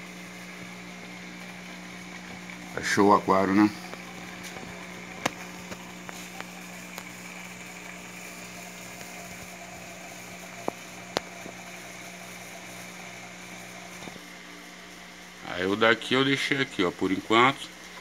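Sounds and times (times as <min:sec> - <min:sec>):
water splashing into aquarium: 0:00.0 - 0:14.2
water pump humming: 0:00.0 - 0:18.0.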